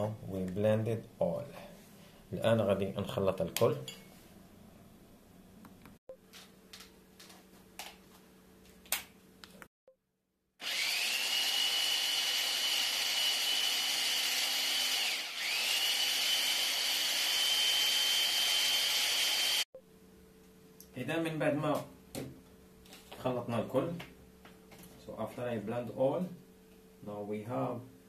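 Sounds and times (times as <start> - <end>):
hand blender motor whine: 10.6 - 19.7.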